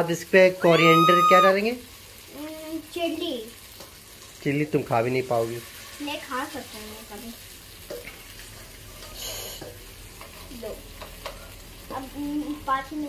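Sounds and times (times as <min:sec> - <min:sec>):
chicken sizzling in oil: 0:00.0 - 0:13.0
spatula stirring in a wok: 0:05.6 - 0:12.5.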